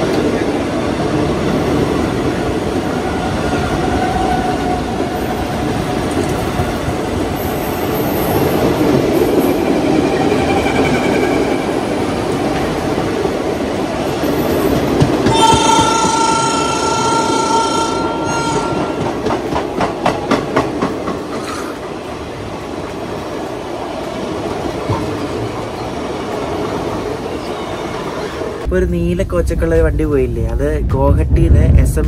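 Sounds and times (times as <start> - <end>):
train passing on rails: 0.0 - 32.0
train horn: 15.2 - 19.2.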